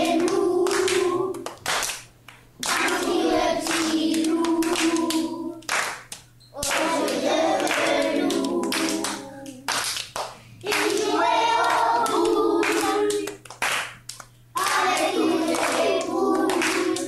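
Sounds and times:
children singing together: 0.0s - 1.6s, 2.6s - 5.8s, 6.6s - 9.8s, 10.6s - 13.4s, 14.6s - 17.0s
hands clapping: 0.0s - 17.0s.

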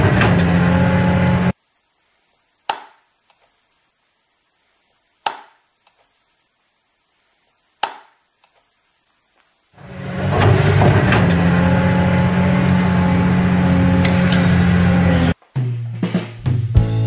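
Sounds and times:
loud opening sound: 9.8s - 11.7s.

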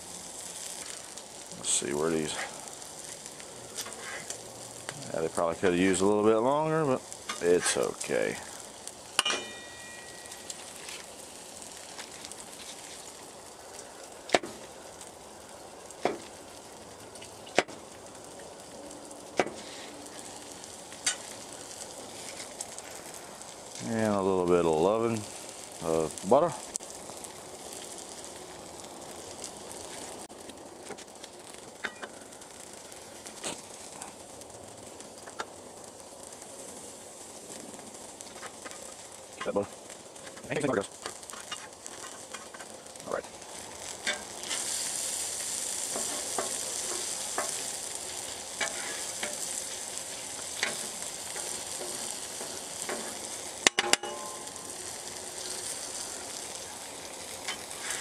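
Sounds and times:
food sizzling on griddle: 0.0s - 58.0s
metal spatula scraping steel: 48.6s - 49.3s.

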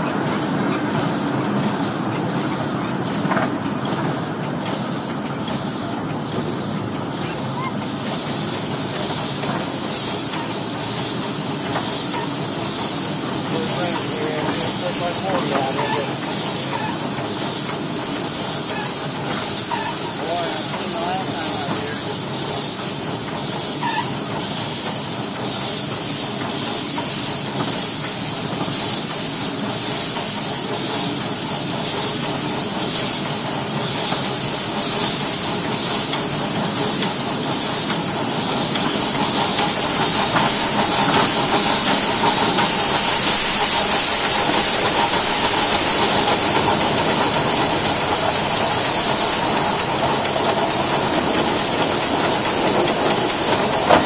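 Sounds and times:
steam locomotive hissing: 0.0s - 54.0s.

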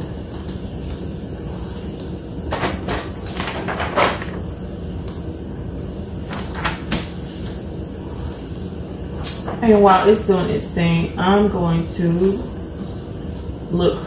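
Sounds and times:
printer whirring: 0.0s - 10.6s
paper rustling: 2.8s - 4.4s.

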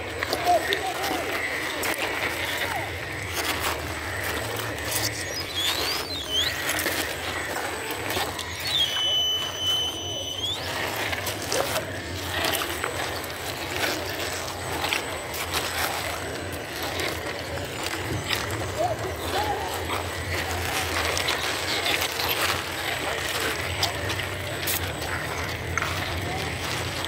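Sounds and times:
tires scraping on stone: 0.0s - 27.0s
toy car electric motor: 0.0s - 27.0s
high whistle: 5.2s - 7.0s, 8.2s - 11.2s.

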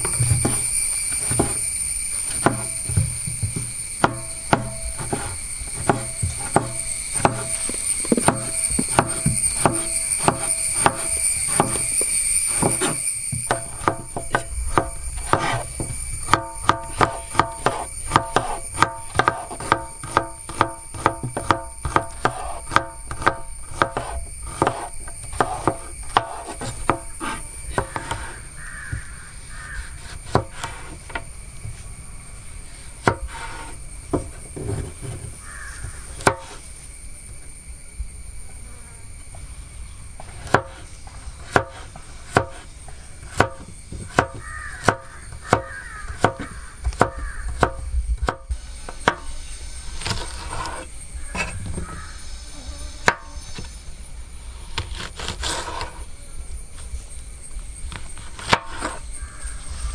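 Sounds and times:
knife chopping on wooden board: 2.3s - 29.0s, 41.4s - 42.6s.

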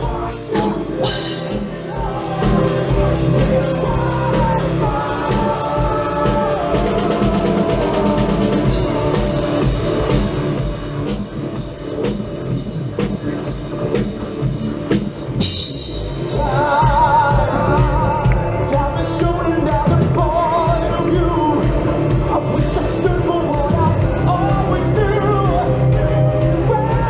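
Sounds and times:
male lead vocals: 0.0s - 10.1s, 16.1s - 27.0s
drums: 0.0s - 27.0s
metal band playing live: 0.0s - 27.0s.

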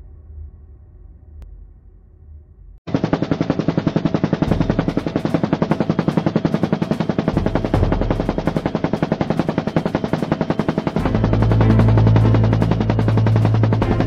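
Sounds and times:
helicopter rotor chopping: 2.9s - 14.0s.

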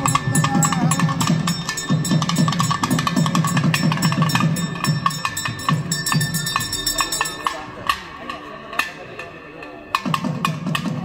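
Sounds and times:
fast drumming: 0.0s - 7.5s
steady high tone: 0.0s - 8.0s.

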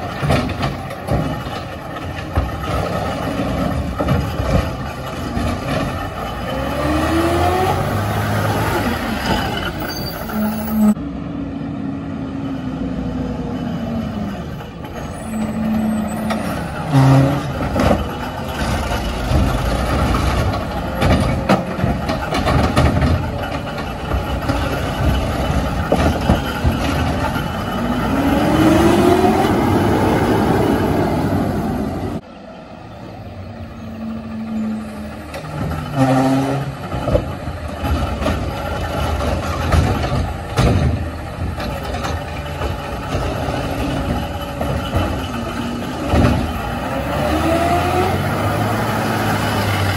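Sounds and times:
garbage truck running: 0.0s - 49.9s.

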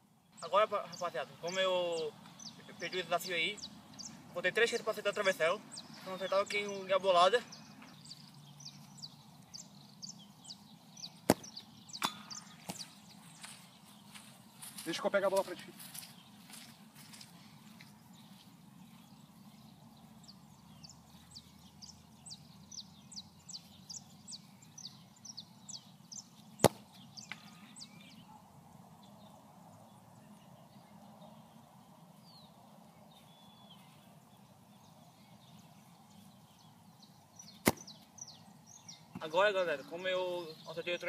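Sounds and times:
bird chirping: 0.0s - 41.0s
faint outdoor hum: 0.0s - 41.0s
football being kicked: 11.2s - 12.8s, 26.6s - 27.0s, 37.6s - 38.0s.

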